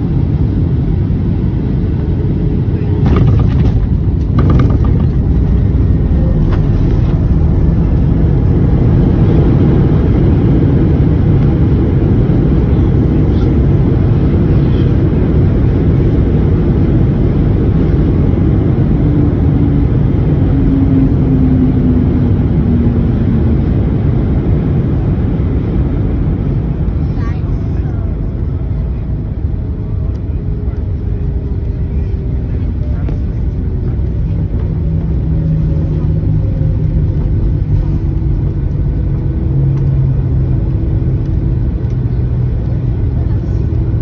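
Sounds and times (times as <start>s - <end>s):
jet engines roaring: 0.0s - 44.0s
knocks: 3.0s - 5.6s
wheels rolling on runway: 3.0s - 8.9s.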